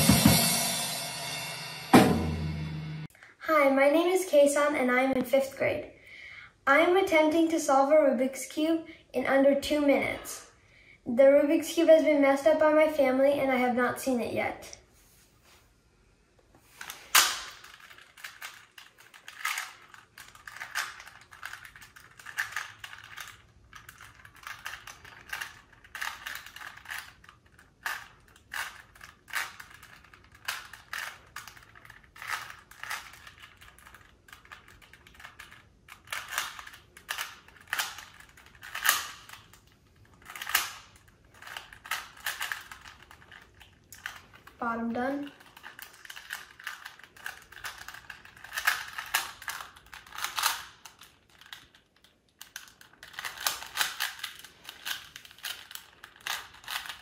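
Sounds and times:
plastic puzzle cube clicking: 17.1 - 44.5, 45.4 - 57.0.

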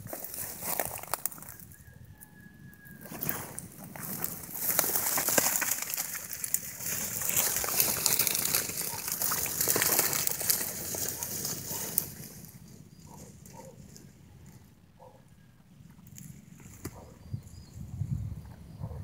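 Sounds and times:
dry reeds rustling and snapping: 0.0 - 1.8, 3.0 - 14.7, 15.9 - 17.0.

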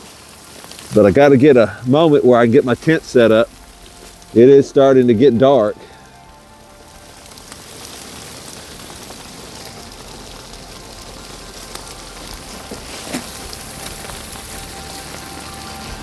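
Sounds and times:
sleet pattering on leaves: 0.0 - 16.0
camp chair clicks and rustles: 8.1 - 16.0.

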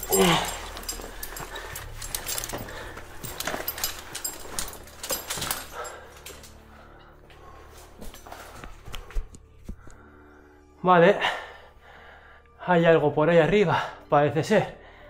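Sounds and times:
man groaning with effort: 0.0 - 1.2
climbing gear knocking and clicking: 0.0 - 6.5
breathing: 0.2 - 12.6, 14.8 - 15.0.

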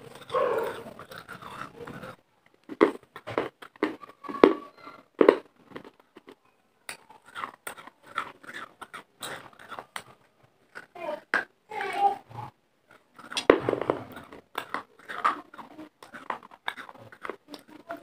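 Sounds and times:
chewing crunchy clay: 0.0 - 18.0.

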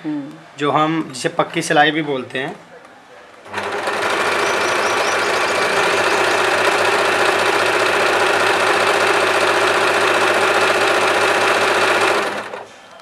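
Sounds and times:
electric sewing machine running: 3.5 - 12.6.

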